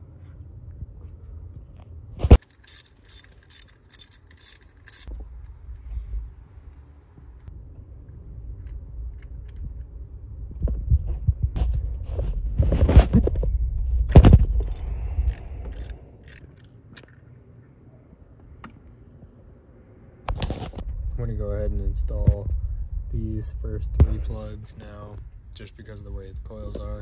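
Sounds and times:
ratchet clicks: 2.4 - 5.1, 14.6 - 17.2.

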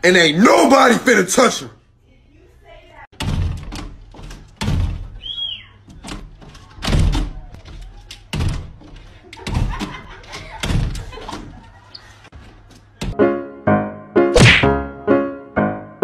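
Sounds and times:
glass door banging and rattling: 3.1 - 5.2, 5.9 - 11.7.

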